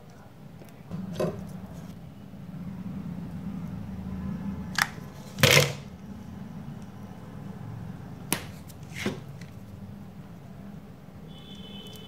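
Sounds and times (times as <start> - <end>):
plastic parts clattering: 5.3 - 5.8.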